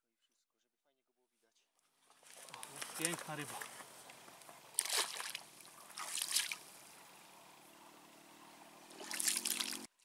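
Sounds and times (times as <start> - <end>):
water splashing: 2.1 - 7.5, 8.3 - 9.9.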